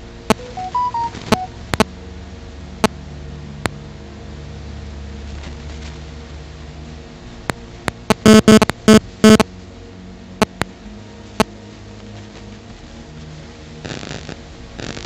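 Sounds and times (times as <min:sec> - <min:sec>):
steady low hum: 0:00.0 - 0:15.0
electronic chime: 0:00.4 - 0:01.5.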